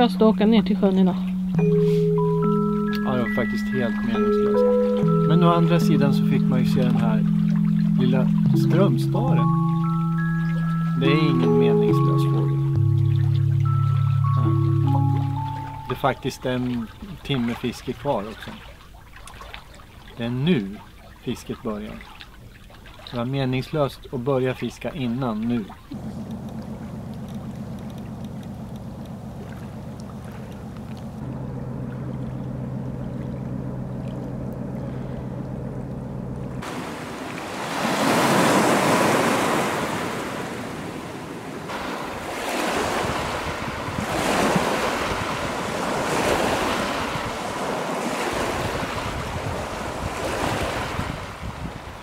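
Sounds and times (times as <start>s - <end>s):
ship engines humming: 0.0s - 52.0s
waves breaking on stony shore: 36.6s - 52.0s.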